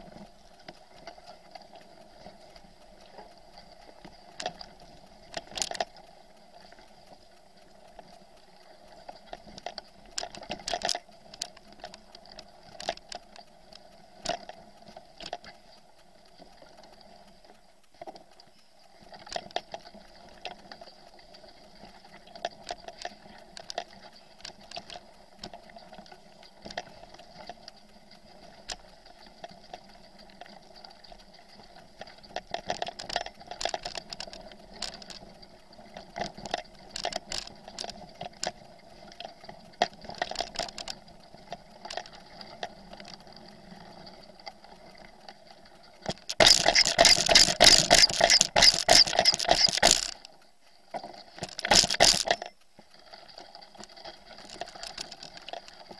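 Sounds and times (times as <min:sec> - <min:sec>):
bicycle rattling over rough track: 0:00.0 - 0:55.9
bicycle clattering over stones: 0:46.1 - 0:50.2, 0:51.4 - 0:52.6.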